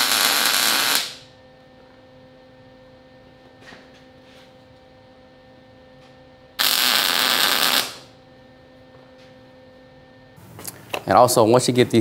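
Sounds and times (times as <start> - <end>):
welding arc crackle: 0.0 - 1.3, 6.6 - 8.1
electrical hum: 0.0 - 12.0.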